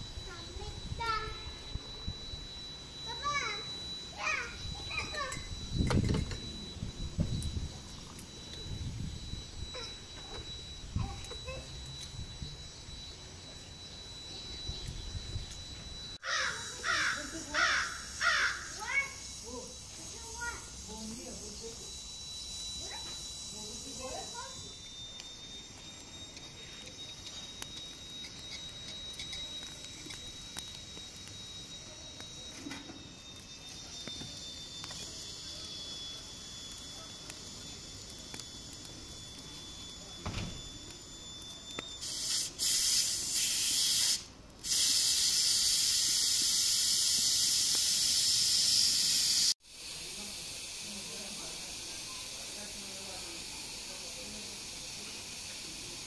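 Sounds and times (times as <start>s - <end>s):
whistle of escaping steam: 0.0s - 56.0s
loud steam hiss: 42.0s - 56.0s.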